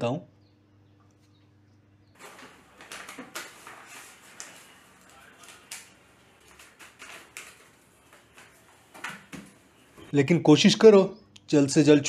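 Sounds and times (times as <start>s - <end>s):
small things rustling and clicking: 2.1s - 10.1s.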